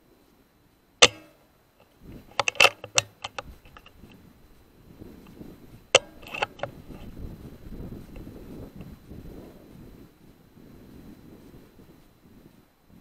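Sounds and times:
air rifle shot: 1.0s - 1.4s
air rifle action clicks: 1.0s - 4.1s, 5.2s - 7.2s.

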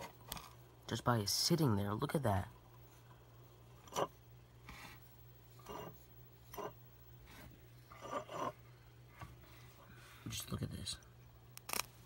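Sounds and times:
faint steady hum: 0.0s - 12.0s
scraping and rustling on wooden table: 3.8s - 9.6s.

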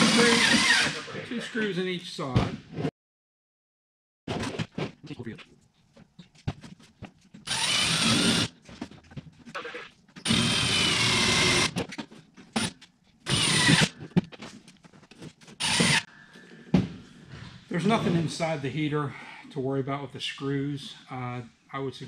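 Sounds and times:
drill driving screws into metal: 0.0s - 1.0s, 7.5s - 8.5s, 10.2s - 11.8s, 13.3s - 13.9s, 15.6s - 16.1s.

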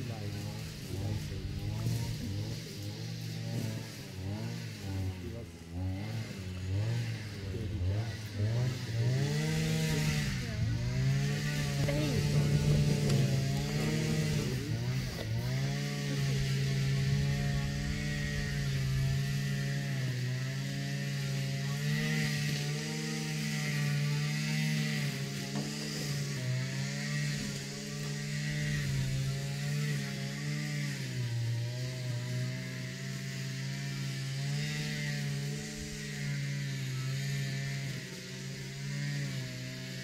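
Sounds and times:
string trimmer engine running: 0.0s - 40.0s.

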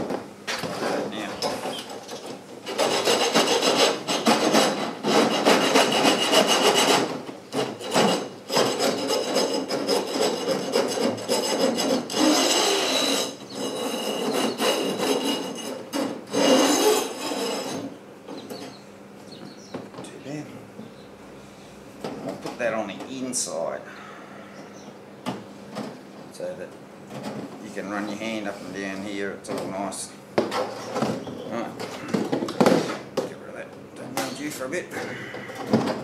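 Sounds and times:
file rasping on wire: 2.6s - 17.9s.

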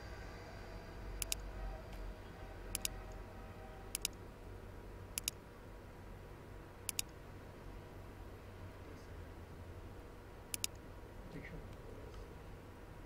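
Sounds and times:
faint low hum: 0.0s - 13.0s
computer mouse clicking: 1.2s - 1.4s, 2.7s - 3.2s, 3.9s - 4.2s, 5.1s - 5.4s, 6.9s - 7.2s, 10.5s - 10.8s.

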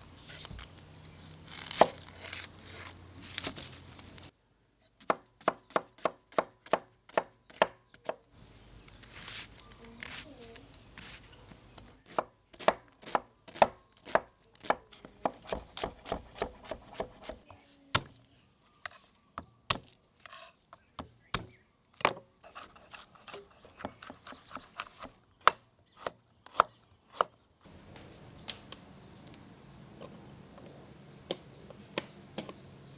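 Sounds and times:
knife chopping on wooden board: 11.8s - 17.4s, 23.2s - 27.4s.

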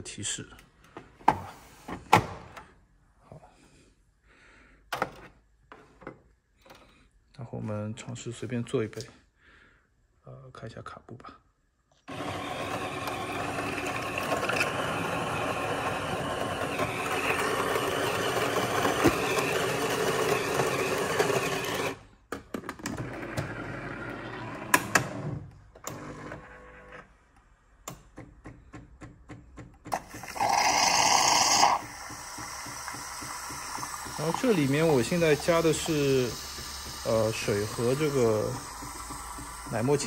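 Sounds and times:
grinder grinding coffee beans: 12.1s - 22.0s, 29.9s - 40.0s
loud steam hiss: 30.4s - 40.0s.

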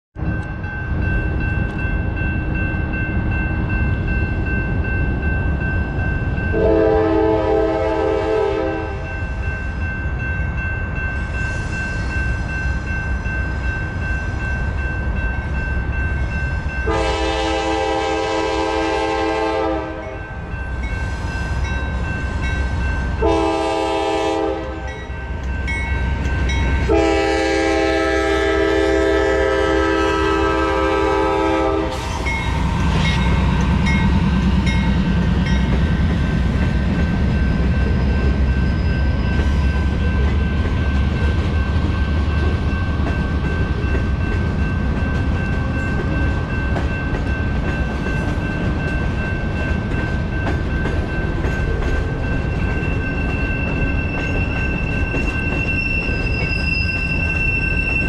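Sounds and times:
low rumble of approaching train: 0.2s - 58.0s
train air horn blasts: 6.5s - 9.1s, 16.8s - 20.2s, 23.2s - 25.0s, 26.8s - 33.2s.

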